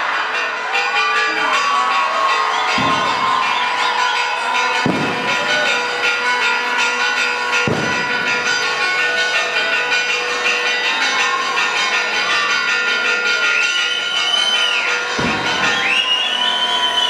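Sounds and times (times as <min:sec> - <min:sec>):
bell ringing: 0:00.0 - 0:17.0.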